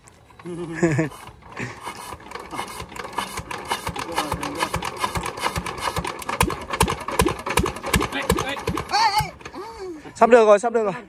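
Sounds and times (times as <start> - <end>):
diesel engine cranking: 0.0 - 10.4.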